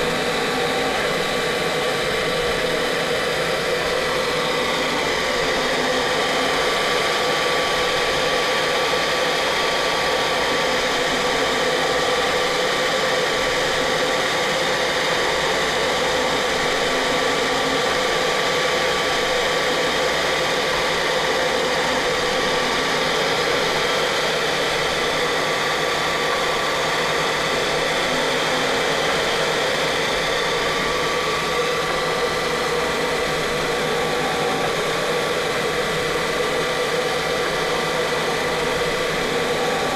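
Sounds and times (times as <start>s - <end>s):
constant whining tones: 0.0s - 39.9s
machine motor and fan whir: 0.0s - 39.9s.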